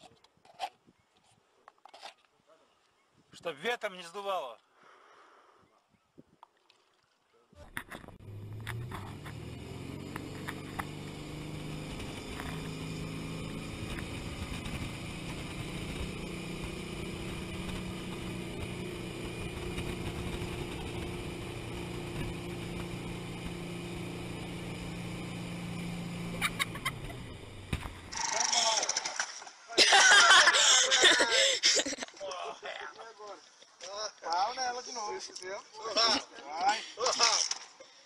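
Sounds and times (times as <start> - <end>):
motorboat engine drone: 8.2 - 28.5.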